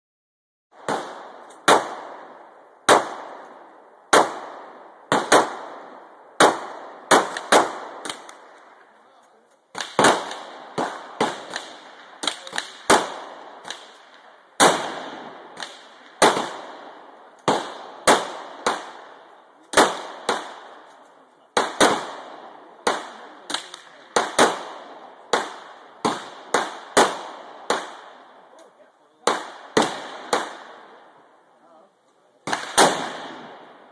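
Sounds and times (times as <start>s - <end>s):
gunshots echoing: 0.7s - 31.4s, 32.4s - 33.9s.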